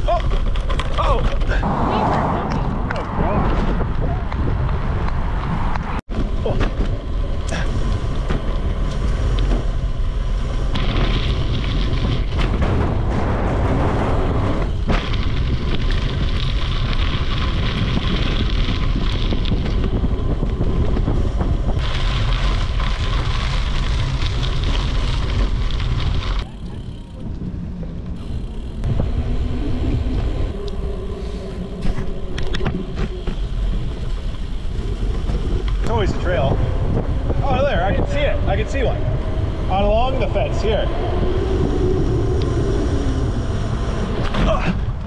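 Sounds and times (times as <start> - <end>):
tyre and road rumble: 0.0 - 45.0
wind buffeting microphone: 0.0 - 45.0.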